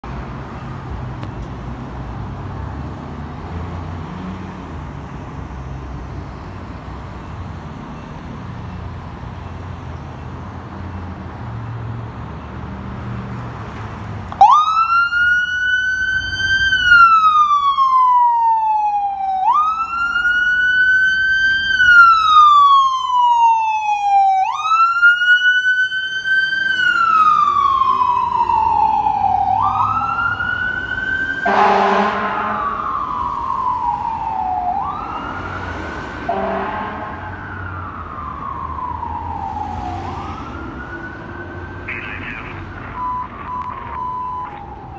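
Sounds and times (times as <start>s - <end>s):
low street traffic rumble: 0.0s - 44.9s
fire engine siren wailing: 14.3s - 44.9s.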